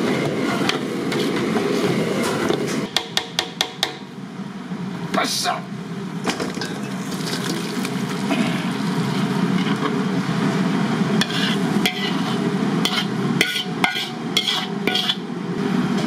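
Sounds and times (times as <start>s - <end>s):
ladle scraping sauce in wok: 11.2s - 15.2s.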